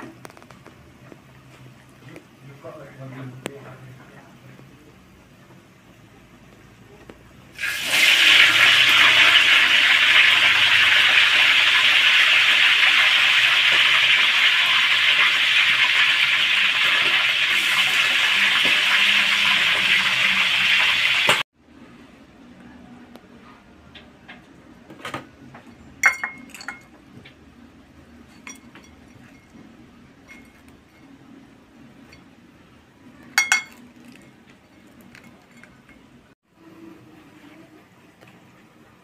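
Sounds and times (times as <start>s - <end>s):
chicken frying in hot oil: 7.5s - 21.5s.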